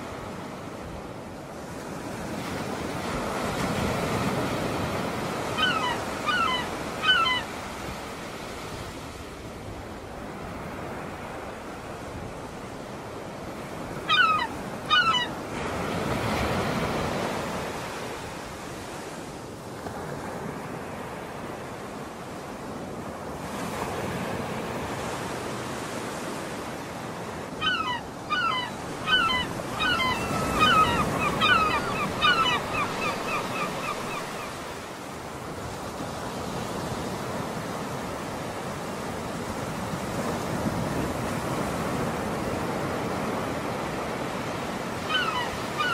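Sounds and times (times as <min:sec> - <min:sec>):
wind: 0:00.0 - 0:45.9
bird calling: 0:05.4 - 0:07.6, 0:14.0 - 0:15.4, 0:27.6 - 0:34.7, 0:45.0 - 0:45.9.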